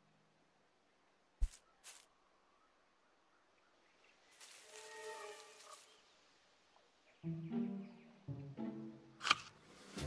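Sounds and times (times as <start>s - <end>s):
soft rustle: 1.4s - 2.2s, 4.0s - 6.2s.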